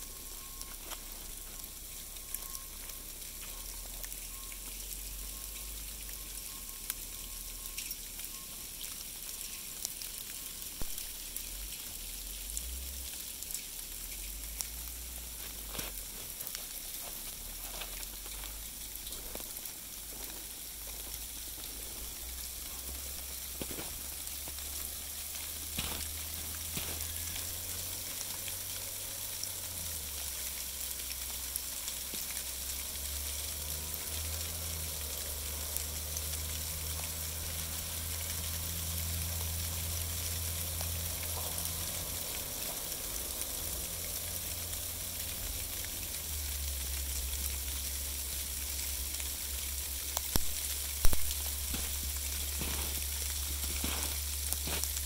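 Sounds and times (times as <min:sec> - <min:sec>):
distant snowplow rumble: 0:00.0 - 0:55.0
sleet hissing on leaves: 0:15.2 - 0:30.0, 0:48.8 - 0:55.0.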